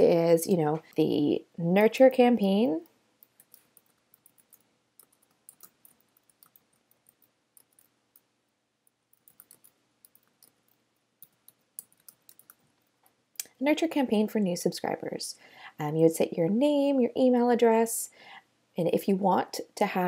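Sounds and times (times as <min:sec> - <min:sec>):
typing on computer keyboard: 0:03.2 - 0:08.3, 0:09.1 - 0:12.6.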